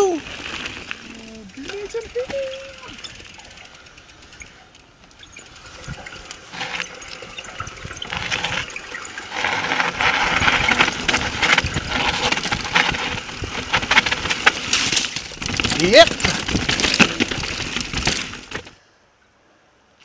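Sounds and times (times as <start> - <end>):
bike rattling and knocking: 0.3 - 18.8
tyre and wind rushing: 5.4 - 18.7.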